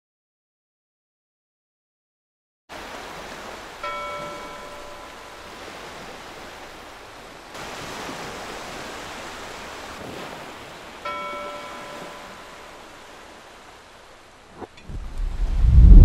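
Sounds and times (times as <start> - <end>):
sea-like noise: 2.7 - 16.0
bell ringing: 3.8 - 5.3, 11.0 - 12.8.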